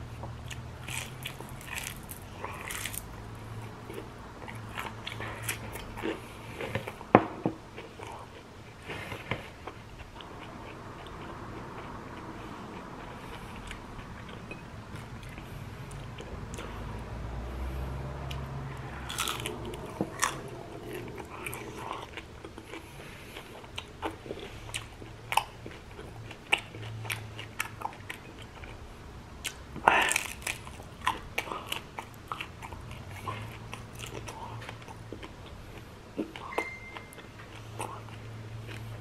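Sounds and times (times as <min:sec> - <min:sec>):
crunchy food being chewed: 0:00.1 - 0:07.1, 0:18.2 - 0:39.0.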